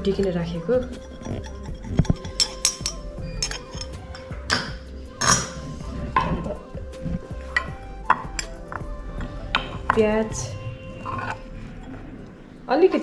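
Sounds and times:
utensils clinking on bowl: 0.0 - 5.6
background music: 0.0 - 13.0.

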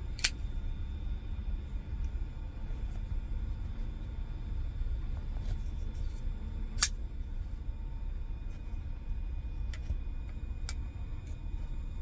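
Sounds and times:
steady low rumble: 0.0 - 12.0
handling clicks: 0.2 - 0.4.

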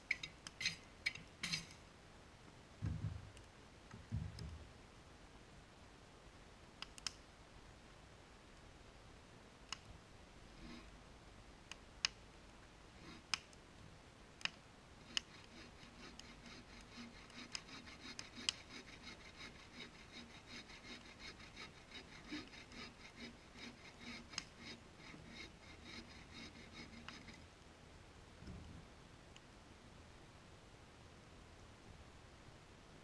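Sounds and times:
hand saw cutting log: 13.0 - 13.4, 15.0 - 27.4.

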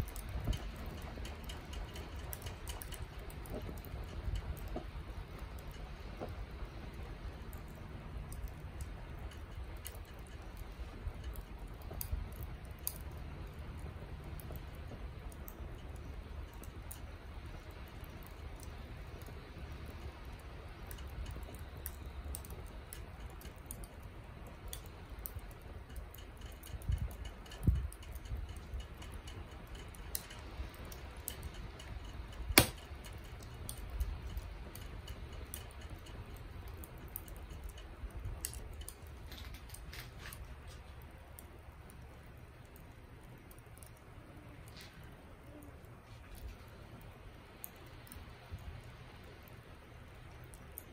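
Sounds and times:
charcoal crackling: 0.0 - 50.9
steady low rumble: 0.0 - 50.9
sharp pop: 32.6 - 32.8.

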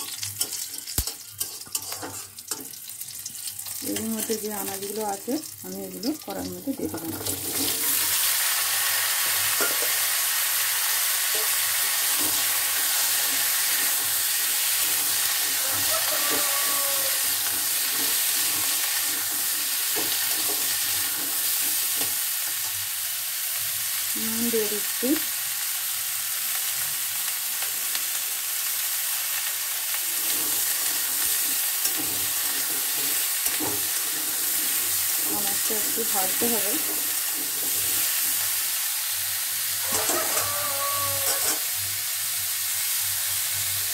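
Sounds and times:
vegetables sizzling in hot oil: 0.0 - 43.9.

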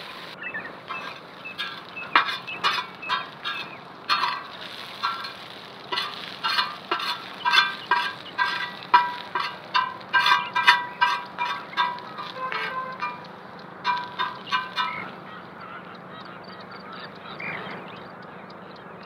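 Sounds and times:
metal spatula scraping iron pan: 0.0 - 15.2
faint sizzle: 0.0 - 16.1.

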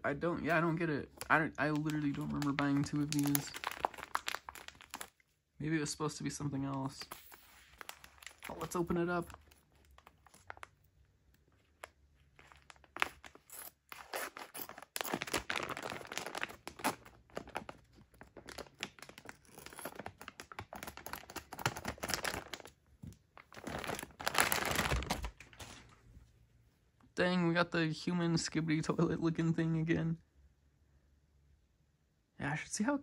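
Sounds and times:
plastic crinkling and rustling: 0.5 - 5.4, 6.5 - 26.1.

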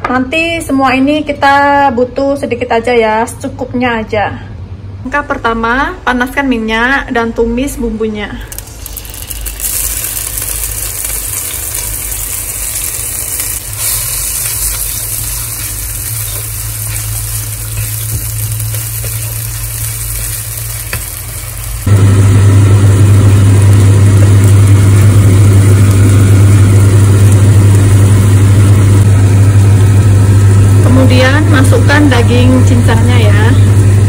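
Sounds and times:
paste sizzling in hot oil: 8.5 - 29.1
loud steady low hum: 9.4 - 34.0.

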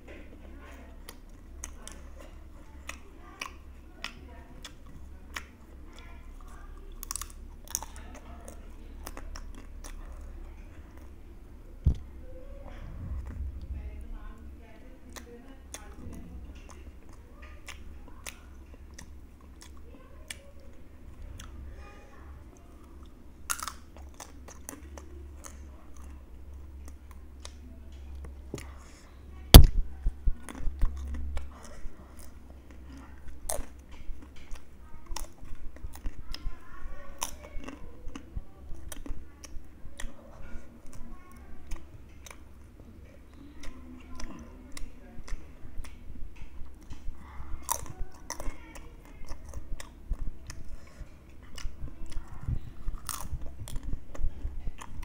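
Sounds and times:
low steady hum: 0.0 - 55.0
crunching fried chips: 22.9 - 27.5, 52.8 - 55.0.

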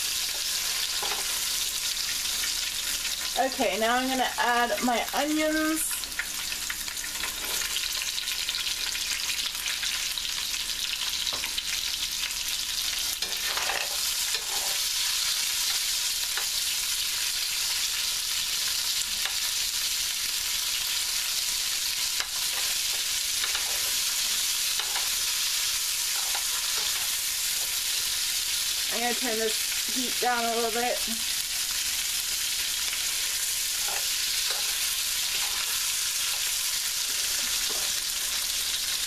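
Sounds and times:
vegetables sizzling in oil: 0.0 - 39.0
metal spoon scraping pan: 0.3 - 1.6, 13.0 - 15.0, 22.2 - 25.2, 33.2 - 38.7.

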